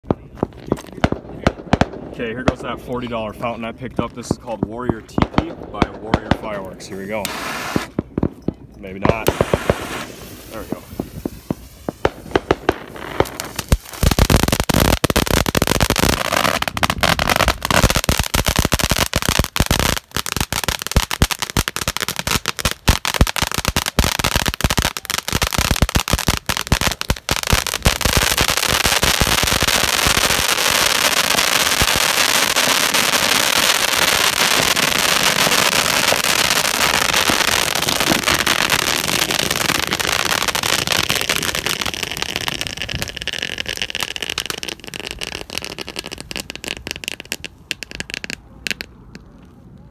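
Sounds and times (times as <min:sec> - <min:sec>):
firework fountain crackling: 0:00.0 - 0:49.4
hiss of spark spray: 0:07.2 - 0:08.0, 0:09.2 - 0:12.2.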